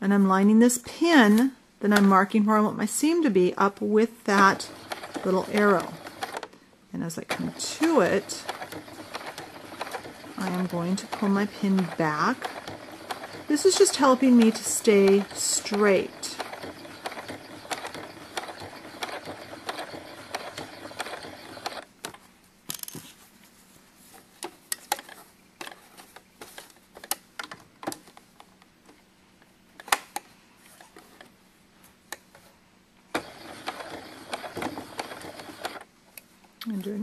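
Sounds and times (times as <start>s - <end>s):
sewing machine stitching: 3.6s - 21.9s, 33.1s - 35.9s.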